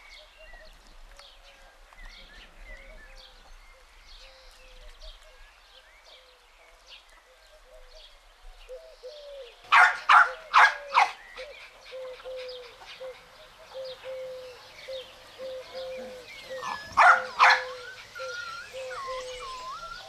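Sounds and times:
small birds chirping: 0.0 - 20.0
dove cooing: 8.7 - 20.0
puppy barking: 9.7 - 11.2, 16.6 - 18.0.

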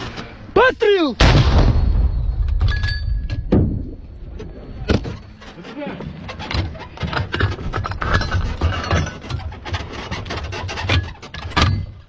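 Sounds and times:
metal knocks and clicks: 2.4 - 12.0.

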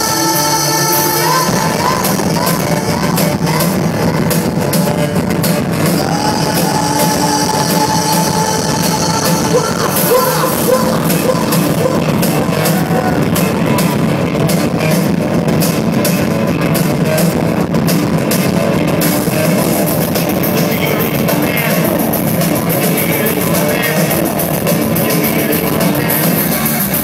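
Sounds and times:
person singing: 0.0 - 14.1, 19.6 - 27.0
drums: 0.0 - 27.0
electric guitars: 0.0 - 27.0
live rock band: 0.0 - 27.0.

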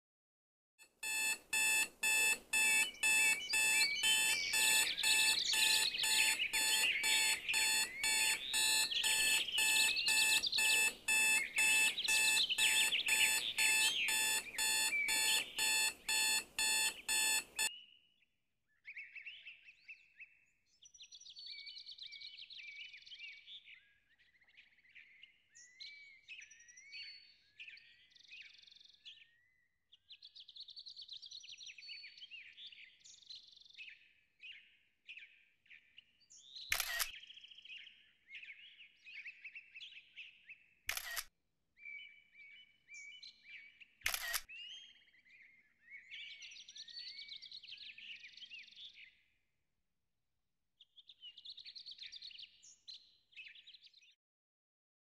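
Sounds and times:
alarm beeping: 1.0 - 17.7
birds chirping: 1.0 - 17.7.

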